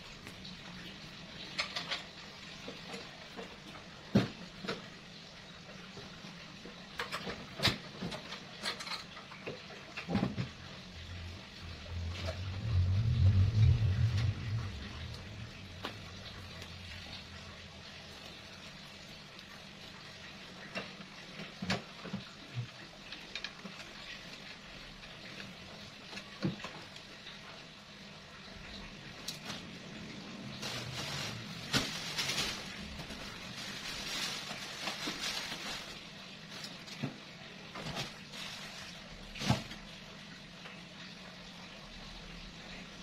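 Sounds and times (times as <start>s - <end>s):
rustling of boxes and bags: 30.4s - 37.2s, 37.8s - 39.9s.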